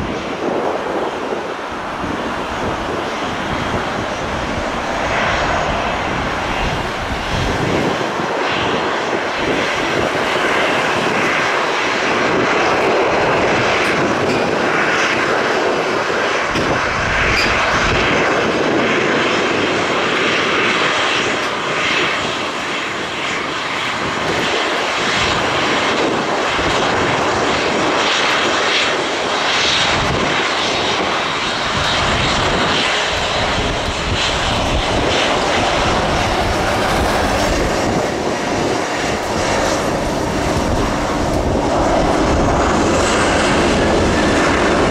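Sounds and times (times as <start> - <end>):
jet engines at taxi power: 0.0 - 44.9.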